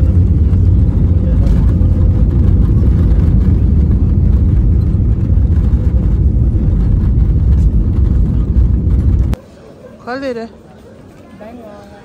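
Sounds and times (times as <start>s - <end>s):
jet airliner landing rumble: 0.0s - 9.4s.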